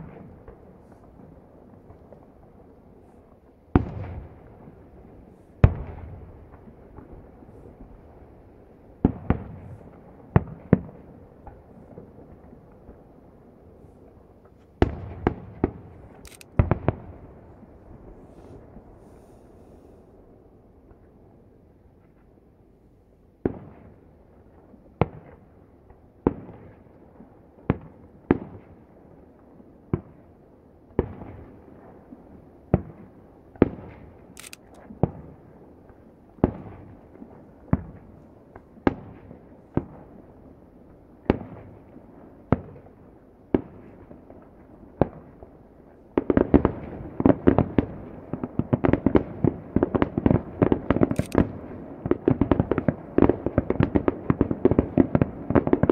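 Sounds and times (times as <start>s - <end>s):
distant firework shells bursting: 9.0s - 19.6s.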